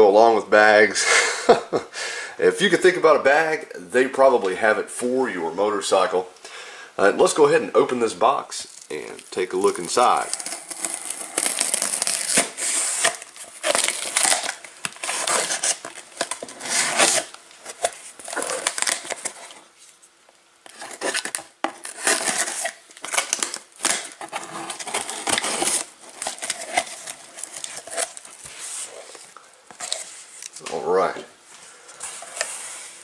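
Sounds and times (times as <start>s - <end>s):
cardboard rustling: 8.2s - 33.0s
knife slitting packing tape: 10.4s - 19.4s, 20.7s - 28.3s.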